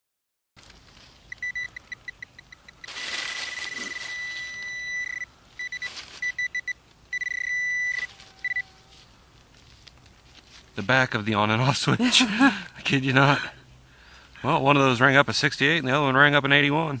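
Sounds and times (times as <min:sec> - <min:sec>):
hands scraping leaves and soil: 0:00.6 - 0:01.7, 0:02.8 - 0:06.6, 0:08.0 - 0:11.8
pinpointer beeping: 0:01.3 - 0:08.7.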